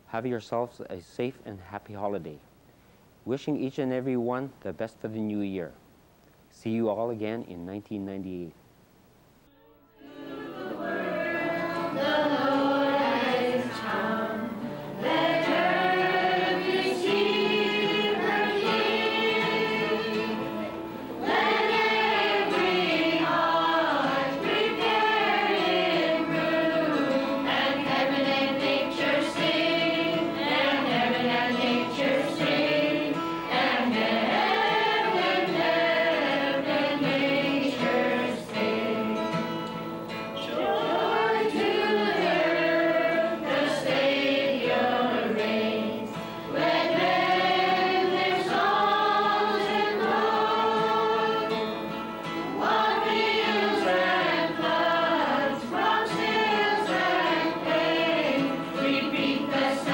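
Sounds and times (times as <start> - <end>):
choir singing a carol: 9.6 - 59.9.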